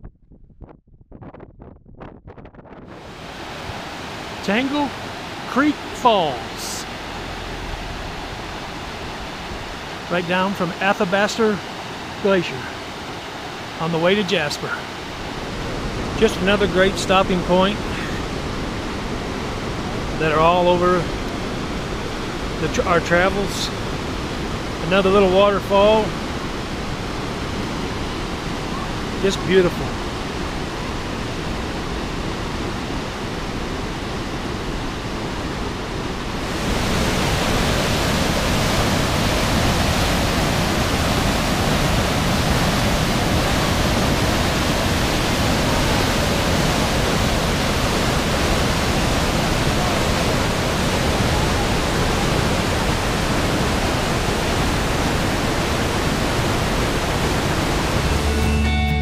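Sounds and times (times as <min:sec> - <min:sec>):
waterfall rushing: 0:02.9 - 0:58.9
guitar music: 0:58.0 - 0:59.0.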